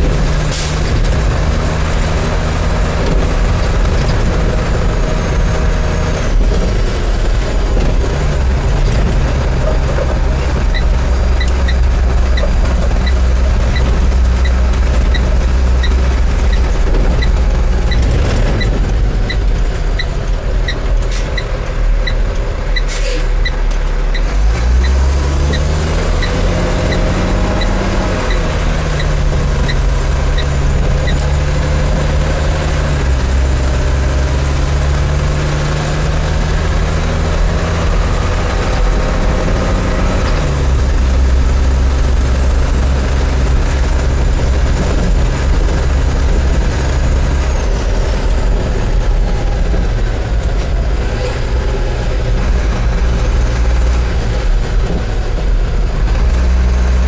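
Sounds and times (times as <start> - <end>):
truck diesel engine changing gear: 0.0 - 57.0.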